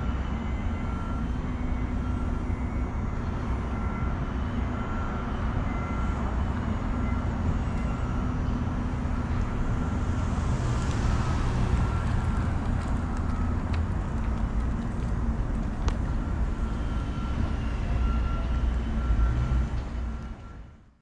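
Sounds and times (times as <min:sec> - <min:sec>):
traffic rumble: 0:00.0 - 0:20.9.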